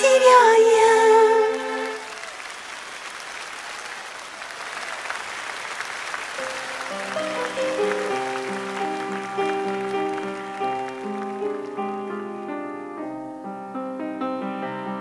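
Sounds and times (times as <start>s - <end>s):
audience applause: 0.9s - 12.5s
grand piano solo: 6.4s - 15.0s.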